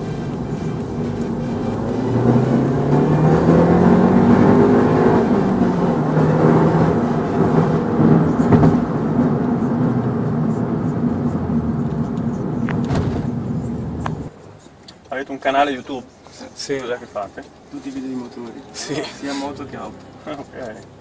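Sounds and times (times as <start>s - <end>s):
car engine from inside cabin: 0.0s - 14.3s
road noise: 0.0s - 21.0s.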